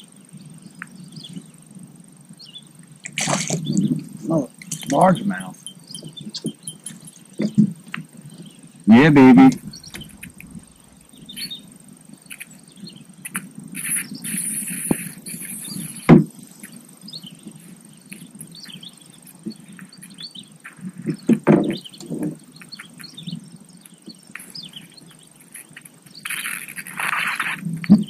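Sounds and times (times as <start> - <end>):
birds calling: 0.0 - 28.0
insects calling: 0.0 - 28.0
knocks and thumps against boat: 21.1 - 22.4.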